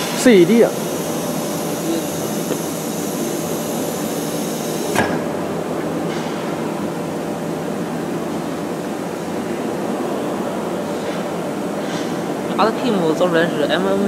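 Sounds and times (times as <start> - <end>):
high hiss: 0.0 - 5.0
wood router hum: 0.5 - 5.0.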